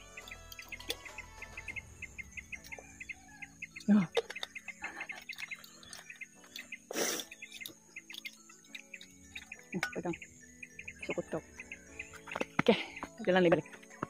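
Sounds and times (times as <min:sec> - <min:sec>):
birds chirping: 0:00.0 - 0:14.0.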